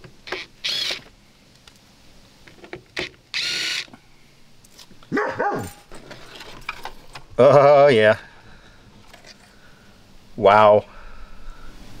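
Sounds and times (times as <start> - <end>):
power driver whirring: 0.2 - 1.1, 3.0 - 3.9.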